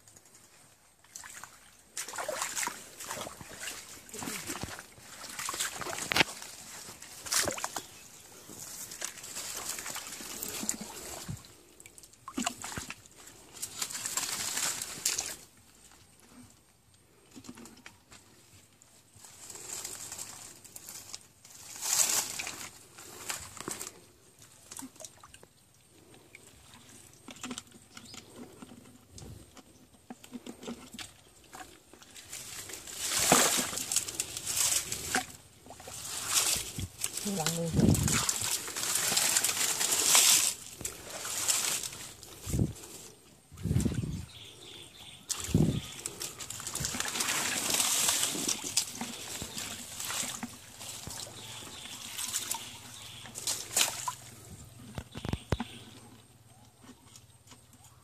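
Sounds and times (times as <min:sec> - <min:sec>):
hands rustling wet leaves: 0:00.0 - 0:16.2, 0:18.0 - 0:56.0
water splashing: 0:01.0 - 0:08.1, 0:30.9 - 0:42.7, 0:45.2 - 0:55.8.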